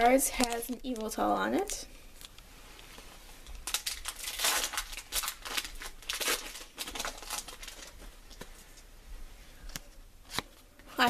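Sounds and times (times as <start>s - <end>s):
foil wrapper tearing and crinkling: 0.0s - 2.3s, 3.5s - 8.1s.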